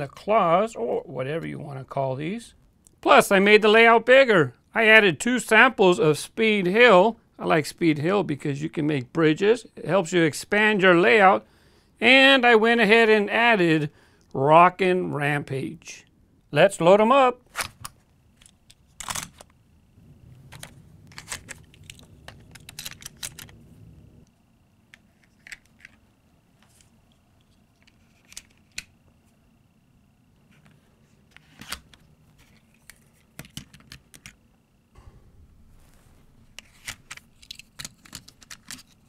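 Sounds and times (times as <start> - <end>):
low rumble of handling: 19.4 - 24.3, 35.0 - 38.4
toy car parts clicking: 36.7 - 39.0.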